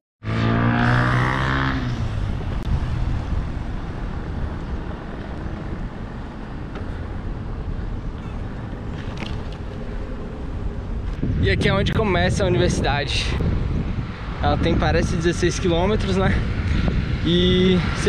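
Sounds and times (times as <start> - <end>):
bike road rumble: 0.2 - 18.0
vehicle engine hum: 0.2 - 18.0
wind noise: 0.7 - 18.0.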